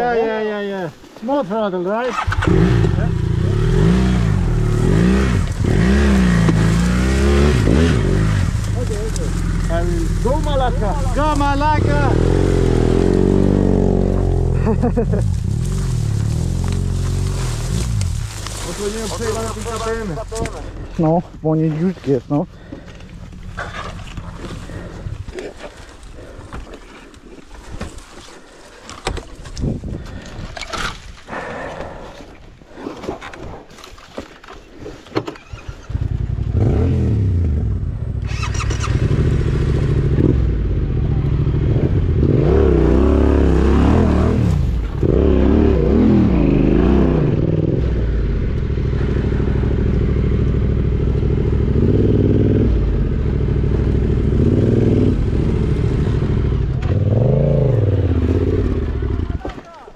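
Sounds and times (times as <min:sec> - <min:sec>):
motorcycle engine revving: 0:02.0 - 0:26.4, 0:35.3 - 0:59.8
knocks and scrapes: 0:21.6 - 0:31.3.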